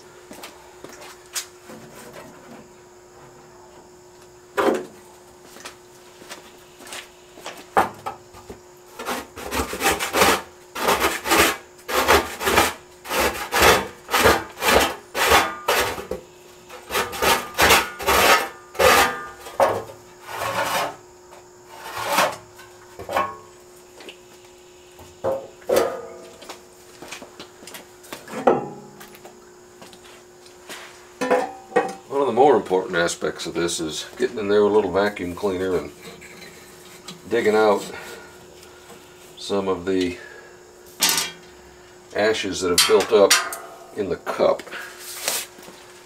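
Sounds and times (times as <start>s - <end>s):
hand scraper rasping over metal: 9.0s - 16.1s, 16.7s - 19.6s, 20.2s - 21.0s, 21.7s - 22.4s.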